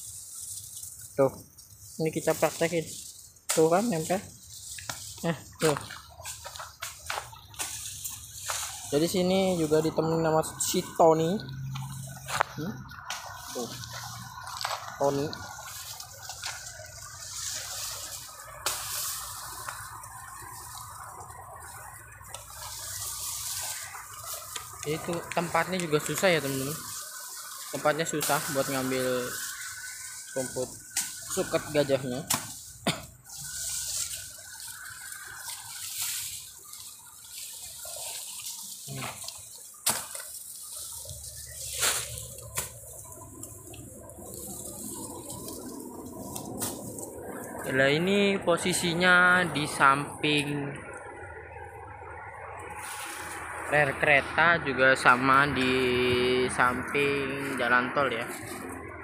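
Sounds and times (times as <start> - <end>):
leaves and grass rustling: 0.0 - 59.0
stalk snapping: 3.4 - 9.0, 17.8 - 21.1, 29.3 - 47.1
stalks snapping: 3.5 - 3.9, 32.2 - 33.1, 38.2 - 43.8.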